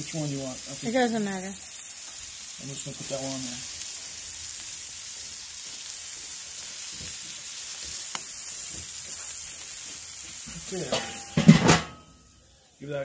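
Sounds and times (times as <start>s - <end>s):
burgers sizzling on a grill: 0.0s - 13.0s.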